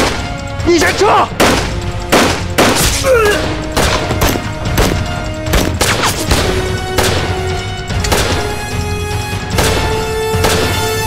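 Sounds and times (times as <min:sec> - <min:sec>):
dramatic background music: 0:00.0 - 0:11.0
pistol gunshots: 0:01.3 - 0:03.0, 0:03.7 - 0:08.6, 0:09.5 - 0:11.0.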